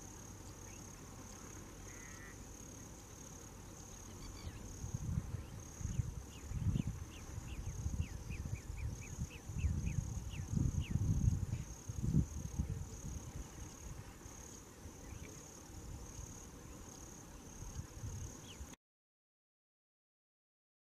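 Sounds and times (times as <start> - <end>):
high insect trill: 0.0 - 18.8
low gusty rumble: 4.6 - 13.6.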